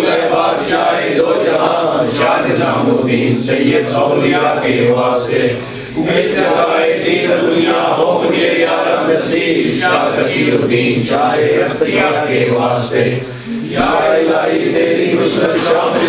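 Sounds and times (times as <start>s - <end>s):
men chanting: 0.0s - 16.0s.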